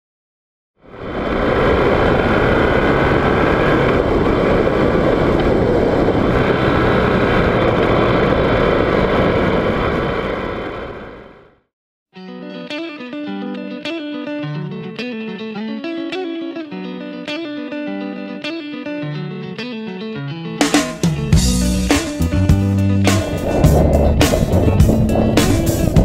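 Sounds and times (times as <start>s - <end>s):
wind noise: 0.8s - 11.4s, 21.4s - 26.0s
motorcycle engine running: 21.4s - 26.0s.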